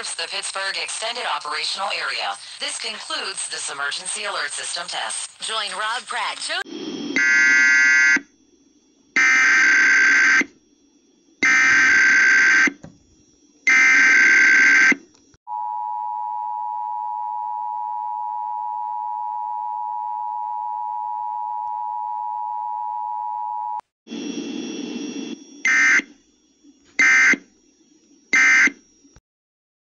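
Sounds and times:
short data bursts: 0.0s - 8.4s.

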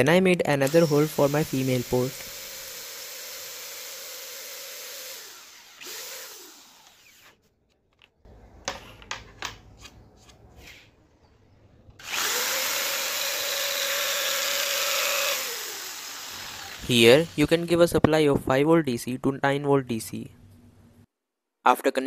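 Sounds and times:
electric drill boring wood: 0.6s - 7.4s, 12.0s - 17.7s.

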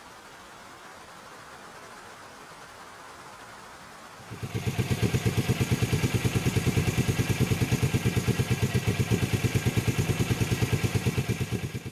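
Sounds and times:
motorcycle engine idling: 4.3s - 11.9s.

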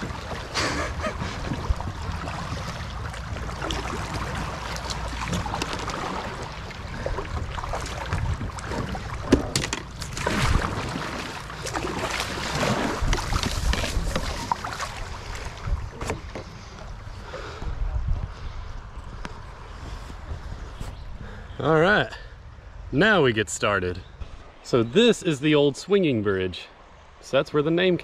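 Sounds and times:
water splashing against kayaks: 0.0s - 20.8s
wind rumble on microphone: 0.0s - 21.6s.

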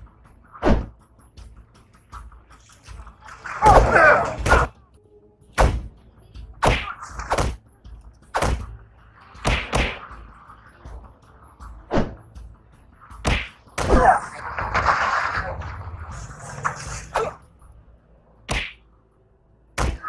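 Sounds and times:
punches and kicks landing: 9.4s - 10.0s, 13.2s - 14.2s, 18.5s - 18.8s.

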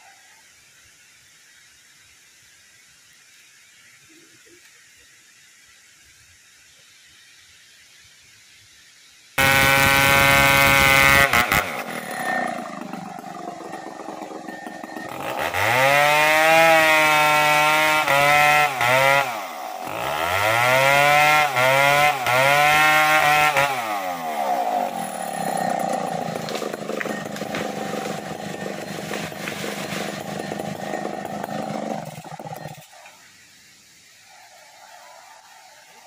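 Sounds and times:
chainsaw idling and revving: 9.4s - 33.0s.

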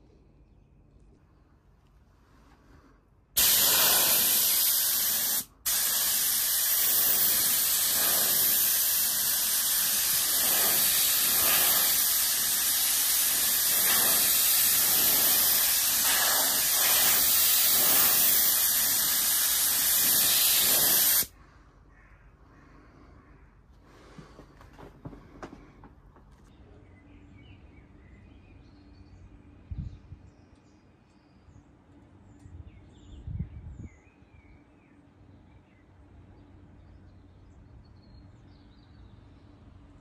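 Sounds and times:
spray gun hissing: 3.4s - 21.3s.

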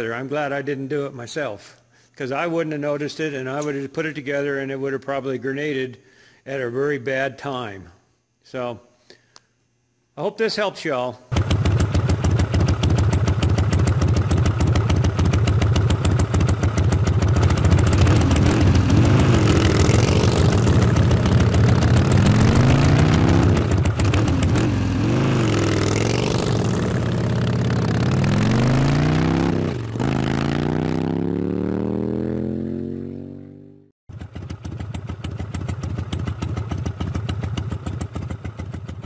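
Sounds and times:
motorcycle engine revving: 11.3s - 39.0s.

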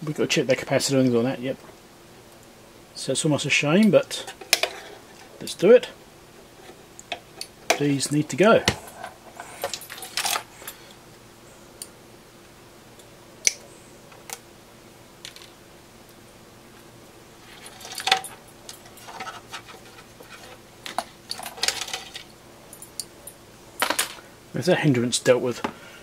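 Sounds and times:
wire rustling: 3.8s - 11.2s, 16.8s - 24.3s.

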